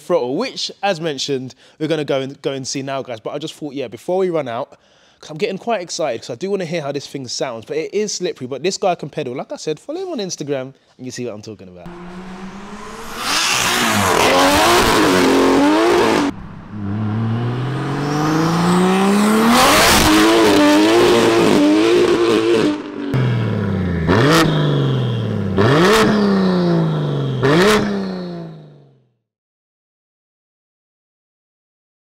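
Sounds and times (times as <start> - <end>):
car engine accelerating hard: 11.9 - 28.7.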